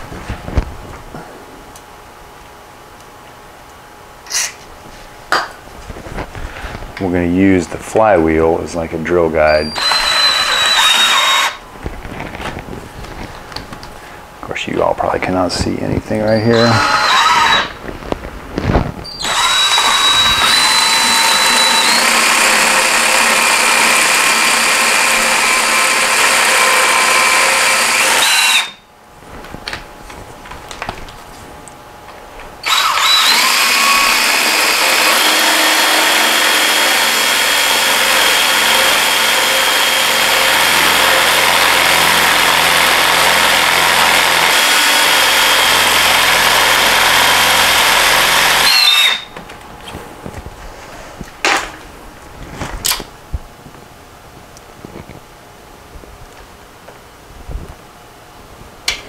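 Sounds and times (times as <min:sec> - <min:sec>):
power drill whining: 0:09.4 - 0:11.6, 0:16.2 - 0:17.8, 0:19.0 - 0:28.8, 0:32.6 - 0:49.4.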